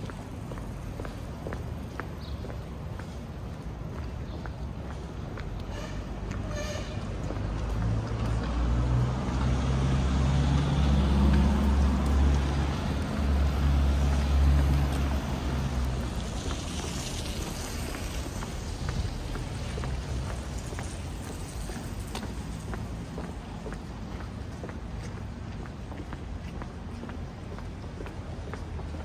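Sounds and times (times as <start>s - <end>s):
street traffic noise: 0.0s - 29.0s
large vehicle engine passing: 7.2s - 22.8s.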